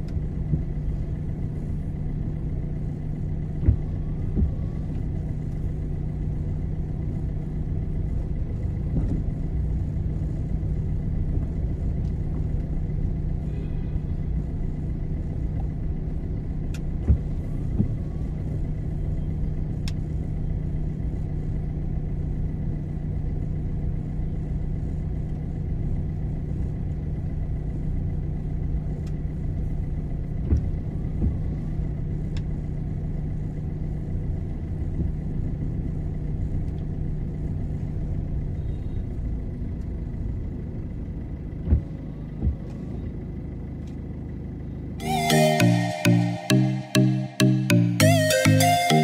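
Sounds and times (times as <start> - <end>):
car engine and road hum: 0.0 - 49.0
electronic music: 45.0 - 49.0.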